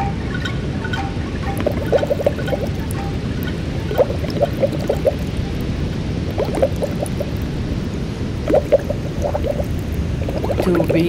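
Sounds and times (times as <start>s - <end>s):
underwater water rush: 1.4s - 11.0s
bubble pops: 1.5s - 2.9s, 3.9s - 5.3s, 6.3s - 7.5s, 8.4s - 11.0s.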